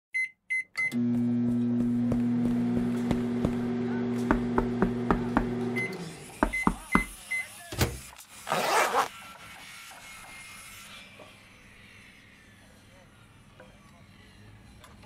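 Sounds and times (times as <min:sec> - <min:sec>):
low electric hum: 0:01.0 - 0:05.8.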